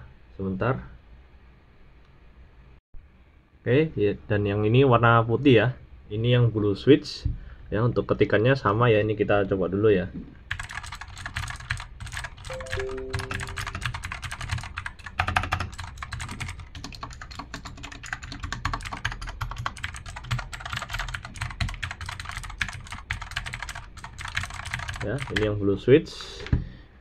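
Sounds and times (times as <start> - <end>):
fast typing on clicky keyboard: 10.5 - 25.6.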